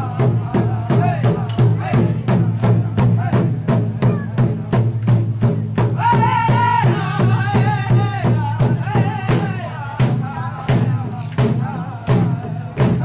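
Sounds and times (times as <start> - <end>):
large drum beating steadily: 0.0 - 13.0
voices singing high-pitched: 6.0 - 13.0.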